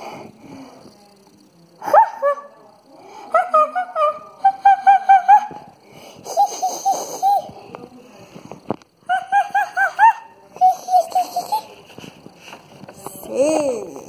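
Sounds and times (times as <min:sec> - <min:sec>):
child laughing: 0:03.3 - 0:07.6, 0:09.1 - 0:12.0.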